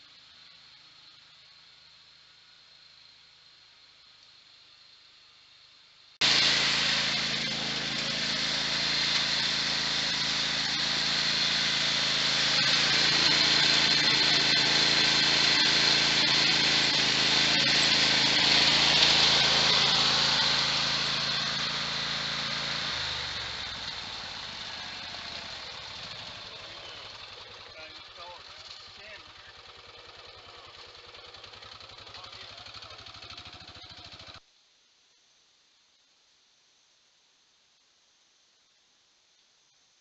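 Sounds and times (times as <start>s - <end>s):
deep utility vehicle engine hum: 6.2s - 34.4s
riding lawn mower engine: 6.2s - 34.4s.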